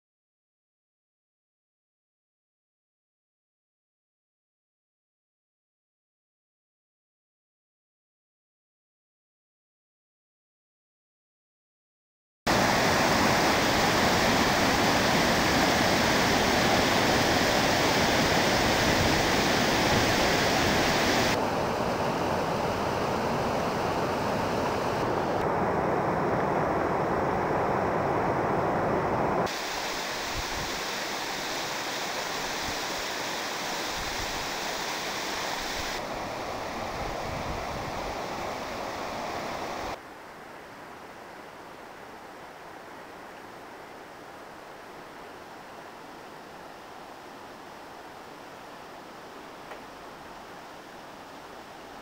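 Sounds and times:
river whitewater rushing over rocks: 12.5s - 52.0s.

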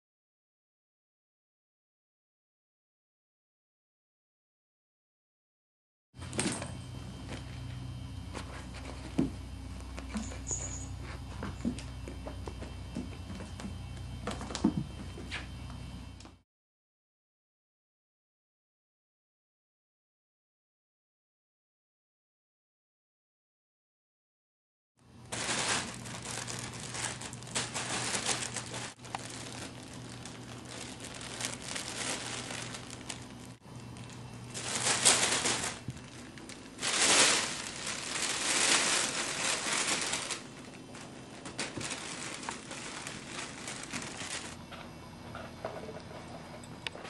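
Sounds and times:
crinkling fabric tunnel rustling: 25.2s - 44.6s.

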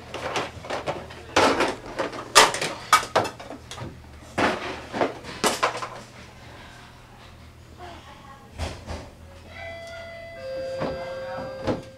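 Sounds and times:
plastic toys clattering in a bin: 0.0s - 6.0s.

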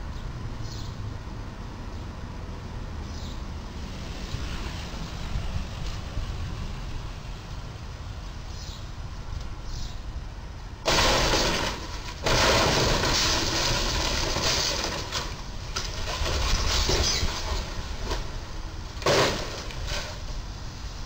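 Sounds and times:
debris clattering on road: 10.8s - 20.6s
metal crunching and scraping: 10.8s - 20.6s
loud bang: 10.9s - 15.0s.

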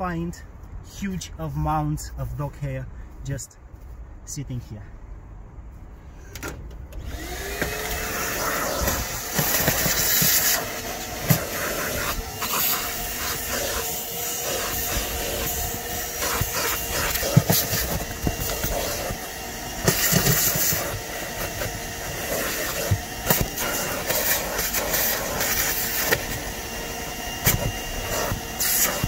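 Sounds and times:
cleaning machine running: 7.0s - 29.0s
hose wand hissing: 7.1s - 29.0s.

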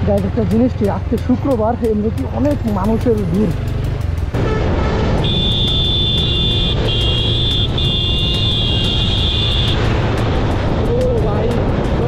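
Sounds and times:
high-pitched vehicle horn: 4.4s - 9.8s
motorcycle engine and wind rumble: 6.3s - 12.0s.

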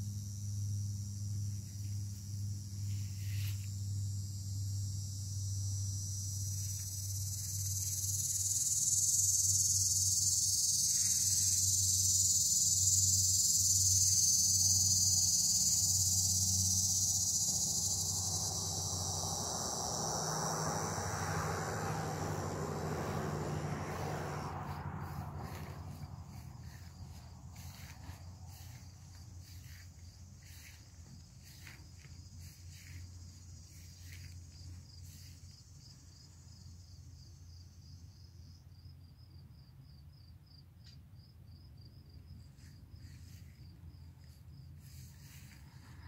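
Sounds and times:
low steady hum: 0.0s - 8.0s
insects droning: 0.0s - 46.0s
broad rushing noise: 19.2s - 30.0s.

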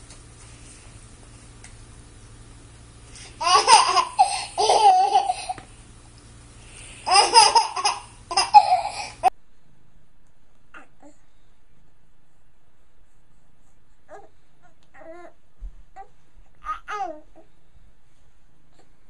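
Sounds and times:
faint steady hum: 0.0s - 19.0s
baby giggling: 3.4s - 5.6s, 7.0s - 9.3s.

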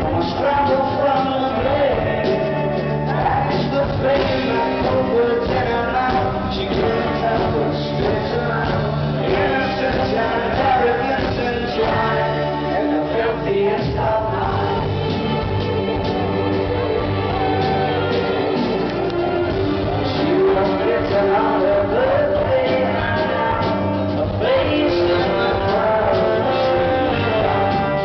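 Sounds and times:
live rock band: 0.0s - 28.0s
person singing: 0.0s - 28.0s
string section: 11.9s - 28.0s.

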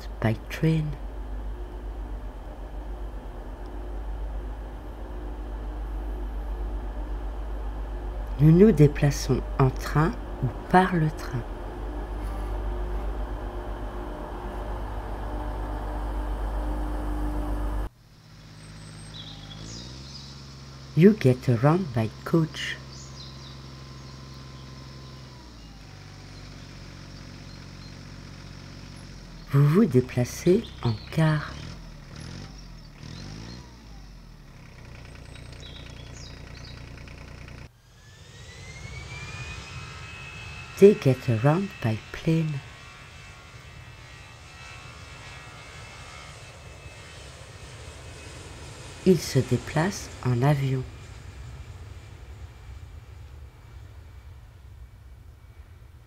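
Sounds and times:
train rumbling at platform: 0.0s - 17.9s
jet engine whine: 0.0s - 27.9s, 28.7s - 56.0s
steady hum: 0.0s - 32.7s, 35.0s - 56.0s
birds chirping: 0.0s - 37.7s
engine running with low throb: 0.0s - 56.0s.

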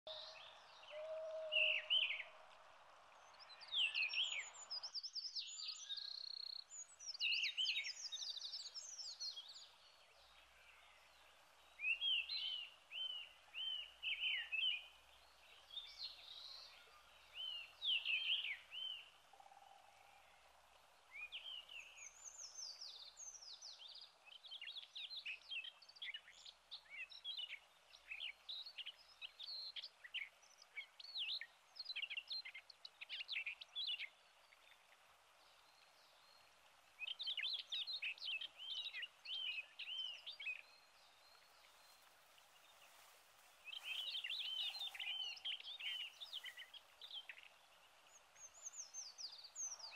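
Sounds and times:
songbirds chirping: 0.0s - 49.9s
background noise rush: 25.8s - 49.9s.

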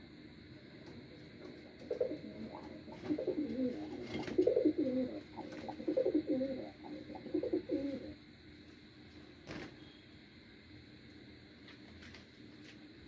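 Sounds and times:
pigeons cooing: 1.5s - 8.2s.

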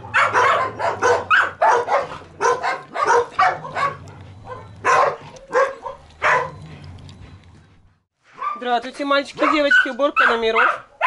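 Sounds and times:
dog barking: 0.0s - 6.7s, 8.4s - 8.7s, 9.4s - 11.0s.

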